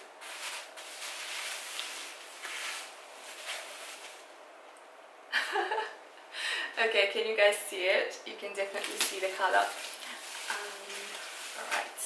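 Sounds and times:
plastic wrapping rustling: 0:00.0 - 0:04.3, 0:08.6 - 0:12.0
fabric bag rustling: 0:00.2 - 0:04.3, 0:08.8 - 0:12.0.

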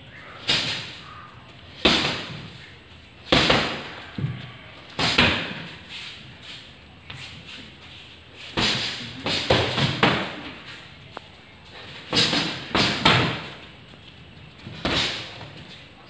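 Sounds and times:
boxing gloves thudding: 0:03.3 - 0:04.4, 0:12.1 - 0:13.6.

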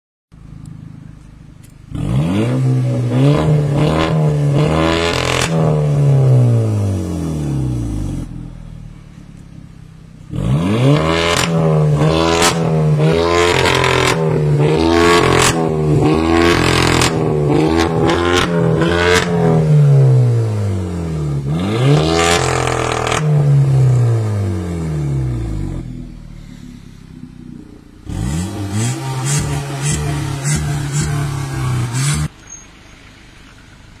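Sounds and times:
car engine revving: 0:00.3 - 0:32.5
exhaust pops and crackles: 0:11.3 - 0:19.5.

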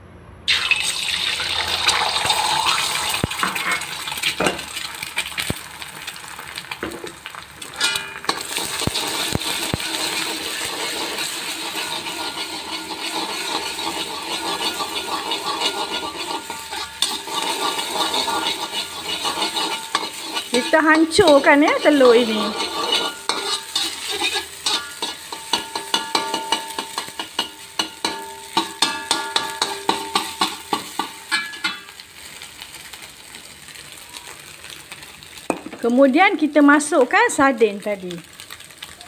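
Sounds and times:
egg sizzling in hot oil: 0:00.5 - 0:39.0
metal spatula scraping a wok: 0:01.7 - 0:04.6, 0:07.6 - 0:32.0.

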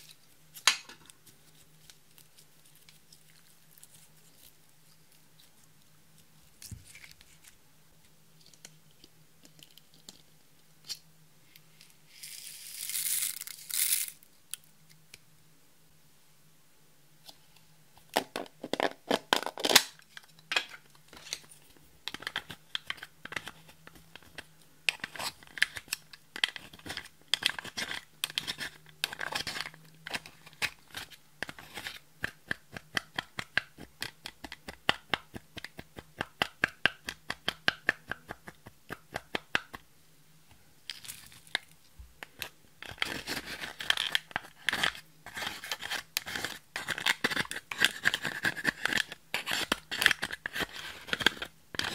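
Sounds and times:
brush scraping powder compact: 0:42.4 - 0:51.9.

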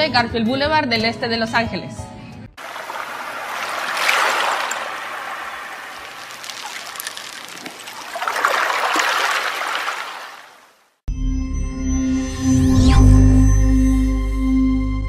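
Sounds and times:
running water trickling: 0:02.6 - 0:10.9.

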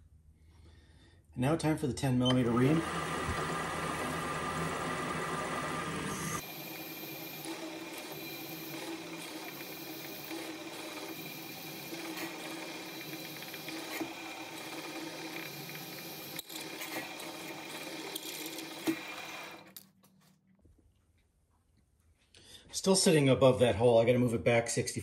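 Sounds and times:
milling machine spindle running: 0:02.3 - 0:19.7.

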